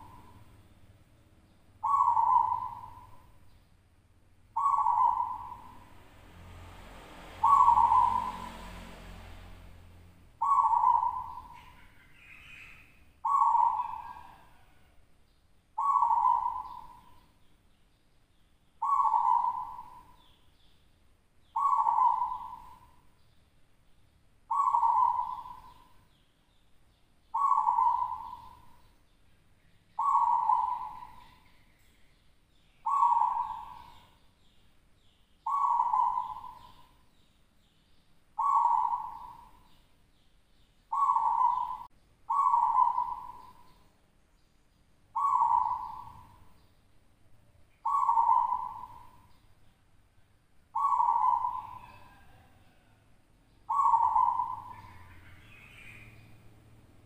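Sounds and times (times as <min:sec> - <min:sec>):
dove cooing: 0:00.0 - 0:00.5, 0:01.8 - 0:03.4, 0:04.6 - 0:05.9, 0:07.4 - 0:08.6, 0:10.4 - 0:15.0, 0:15.8 - 0:17.3, 0:18.8 - 0:20.3, 0:21.6 - 0:23.0, 0:24.5 - 0:26.0, 0:27.3 - 0:28.8, 0:30.0 - 0:31.5, 0:32.8 - 0:34.1, 0:35.4 - 0:37.0, 0:38.4 - 0:39.8, 0:40.9 - 0:43.8, 0:45.2 - 0:46.5, 0:47.8 - 0:49.3, 0:50.7 - 0:53.0, 0:53.7 - 0:56.3.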